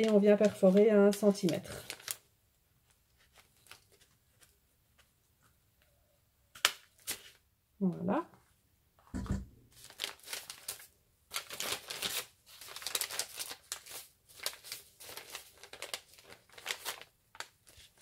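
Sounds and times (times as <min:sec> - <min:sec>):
stiff paper rustling: 0:00.0 - 0:02.2, 0:02.8 - 0:05.2, 0:09.7 - 0:18.0.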